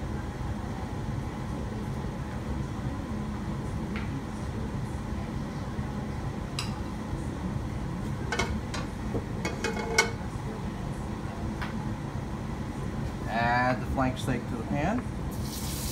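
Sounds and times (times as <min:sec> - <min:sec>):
metal cookware clinking: 0:08.3 - 0:10.2.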